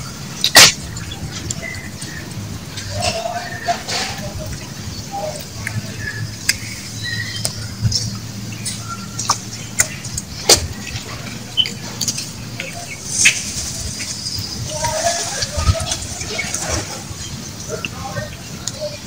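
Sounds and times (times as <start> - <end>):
high chirps: 0.0 - 18.9
sharp clicks and ticks: 5.4 - 13.4.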